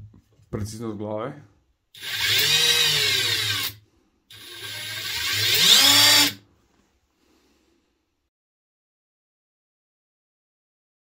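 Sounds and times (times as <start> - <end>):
cordless impact driver whining: 2.0 - 6.4.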